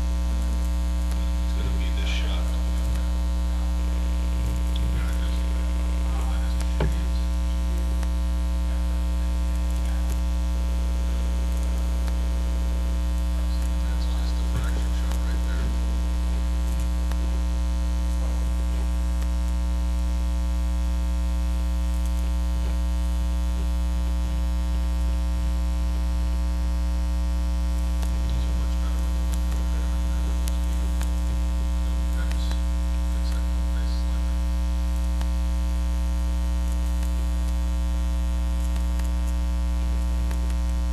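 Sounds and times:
electrical mains hum: 0.0 - 40.9
faint ticks: 36.5 - 40.8.

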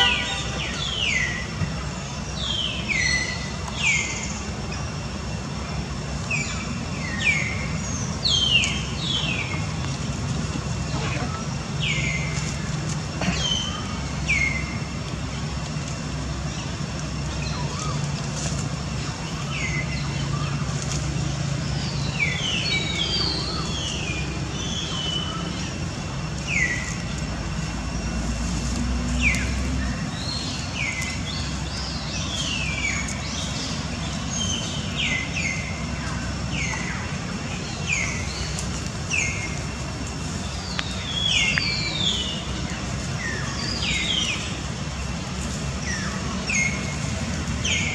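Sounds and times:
birds chirping: 0.0 - 47.9
low engine rumble: 0.0 - 47.9.

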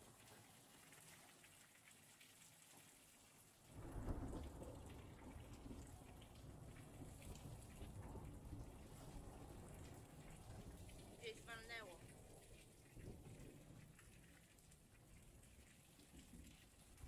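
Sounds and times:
rolling thunder: 3.7 - 11.2.

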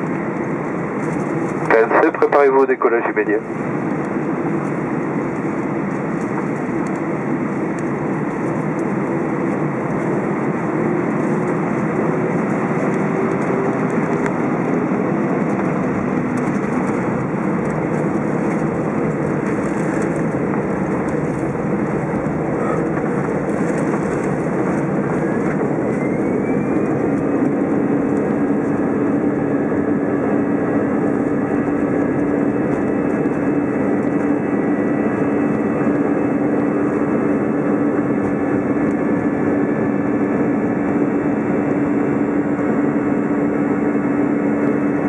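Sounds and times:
aircraft rolling on runway: 0.0 - 45.0
jet engine rumble in cabin: 0.0 - 45.0
faint rising whine: 9.1 - 40.0.

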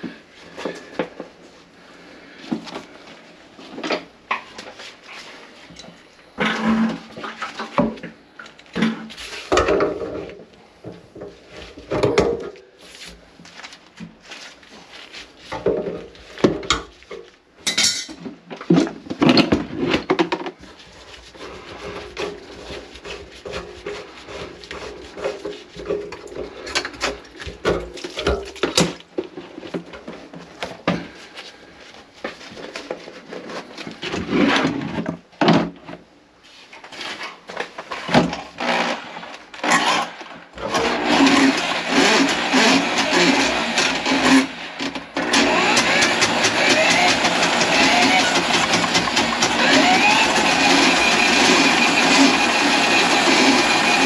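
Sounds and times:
hard objects clattering and knocking: 6.3 - 12.6, 15.5 - 20.8, 43.5 - 54.0.

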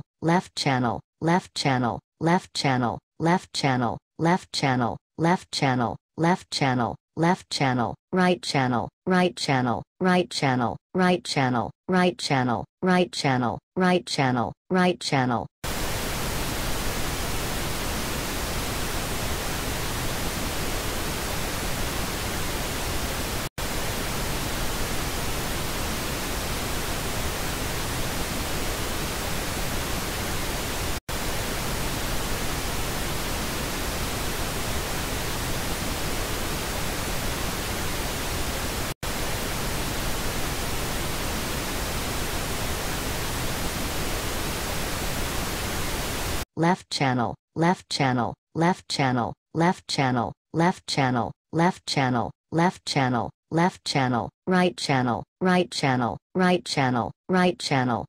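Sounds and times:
pink noise hiss: 15.7 - 46.4.

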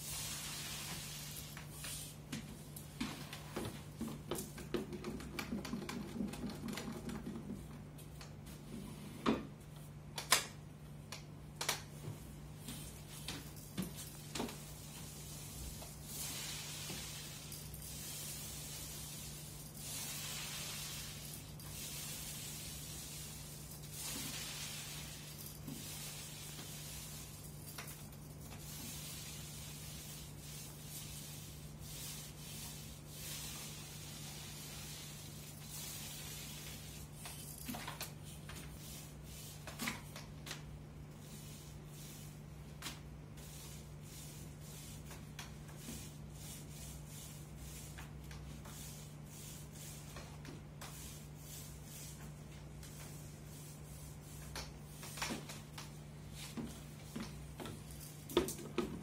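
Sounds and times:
paint roller sticky hiss: 0.0 - 2.2, 12.7 - 40.0.

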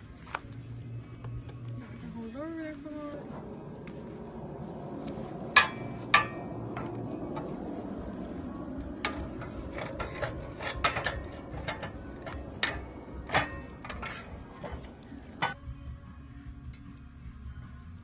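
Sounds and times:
low rumble: 0.0 - 18.0
metal clinks and knocks: 9.0 - 15.6.

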